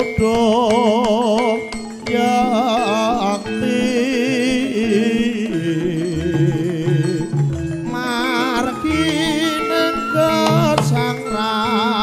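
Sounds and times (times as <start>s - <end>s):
person singing with vibrato: 0.0s - 12.0s
ensemble playing: 3.6s - 11.6s.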